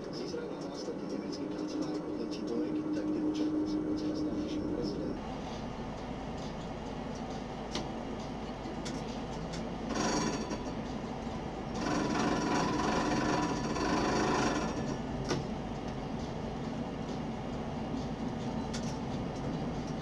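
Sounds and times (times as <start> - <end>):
tram hum and rumble: 0.0 - 20.0
tram whirring: 0.0 - 20.0.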